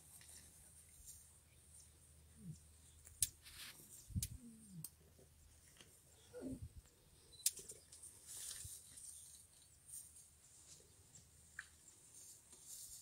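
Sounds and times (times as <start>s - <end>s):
rustling in grass: 3.4s - 4.1s, 8.0s - 13.0s.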